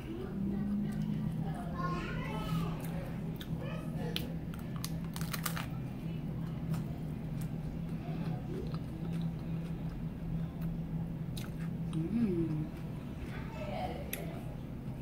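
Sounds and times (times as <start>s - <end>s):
steady low hum: 0.0s - 15.0s
taco shell crunching: 4.1s - 5.8s
chewing: 6.4s - 12.9s.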